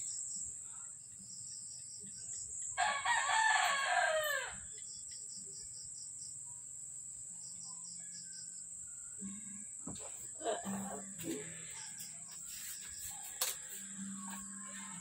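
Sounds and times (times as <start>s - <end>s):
rooster crowing: 2.8s - 4.8s.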